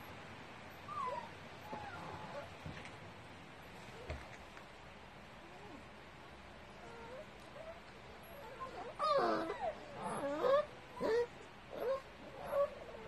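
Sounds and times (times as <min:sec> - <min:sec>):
puppies crying: 0:08.2 - 0:13.0.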